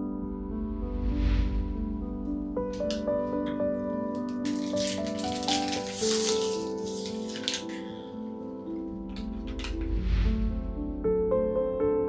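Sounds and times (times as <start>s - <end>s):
background music: 0.0s - 12.0s
crackly hissy rustle: 4.2s - 9.8s.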